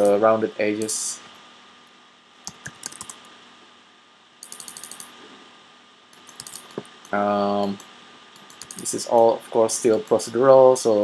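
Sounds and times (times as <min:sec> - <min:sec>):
keyboard and mouse clicking: 0:02.4 - 0:03.3, 0:04.4 - 0:05.1, 0:06.1 - 0:09.0.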